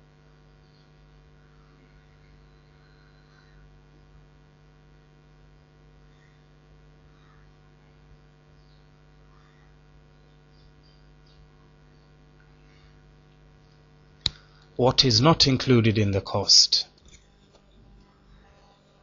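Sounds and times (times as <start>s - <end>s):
faint electrical hum: 0.0s - 19.0s
faint chirps: 0.6s - 3.8s, 8.5s - 13.0s.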